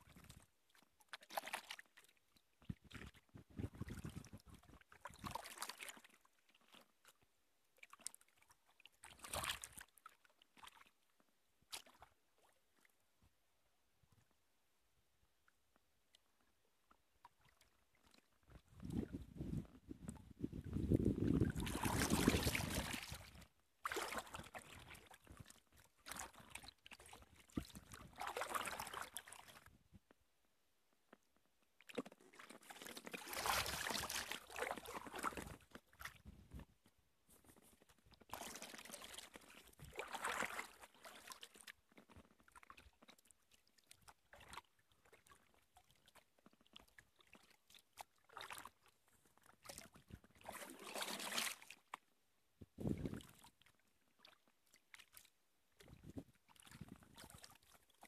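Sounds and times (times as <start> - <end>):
paddle splashing in water: 2.7 - 6.8, 9.1 - 9.9, 11.7 - 12.5, 20.1 - 29.7, 31.9 - 36.4, 38.3 - 41.7, 49.6 - 51.9.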